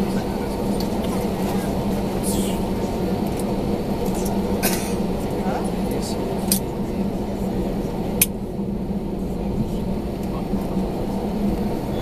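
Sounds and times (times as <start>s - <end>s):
aircraft cabin engine hum: 0.0s - 12.0s.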